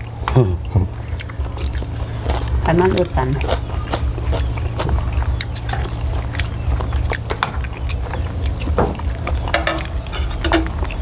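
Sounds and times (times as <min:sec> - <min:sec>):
steady low hum: 0:00.0 - 0:11.0
spoons clinking against plates: 0:09.5 - 0:10.8.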